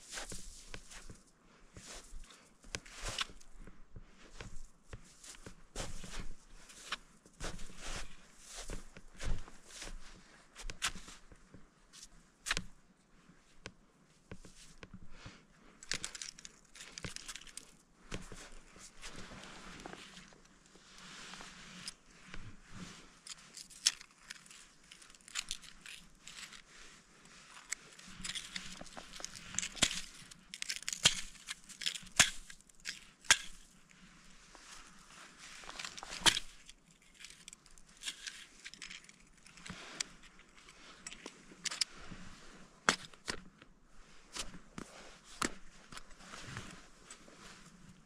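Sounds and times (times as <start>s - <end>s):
crampons crunching on snow and ice: 1.8s - 3.6s, 4.3s - 11.2s, 27.9s - 33.8s, 34.6s - 40.0s.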